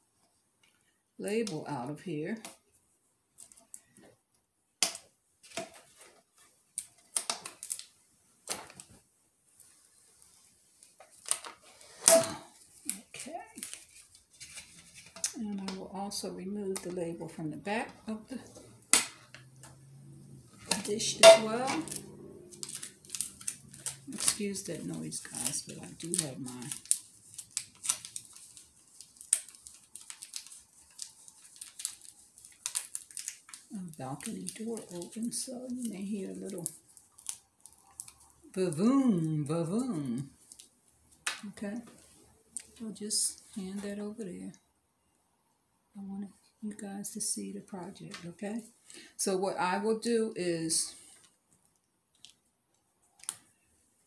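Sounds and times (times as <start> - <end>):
sticker label peeling crackles: 20.6 - 38.4.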